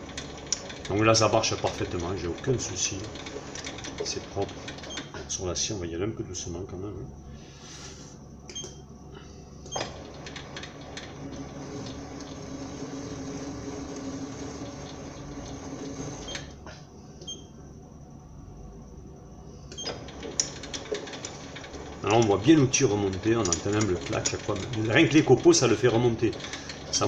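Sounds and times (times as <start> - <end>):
lathe motor humming: 0.0 - 5.6, 9.7 - 16.6, 19.9 - 27.0.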